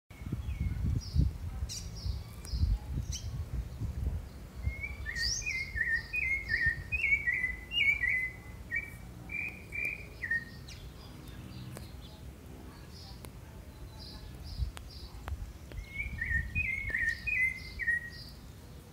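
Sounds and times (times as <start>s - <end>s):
higher bird chirps: 4.4s - 12.2s, 13.8s - 18.5s
thrush whistling song: 4.6s - 10.7s, 15.7s - 18.4s.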